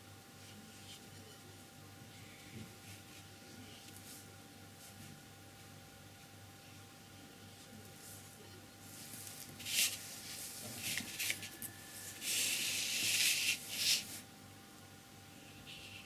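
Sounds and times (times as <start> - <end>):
paper rustling on tabletop: 8.8 - 14.2.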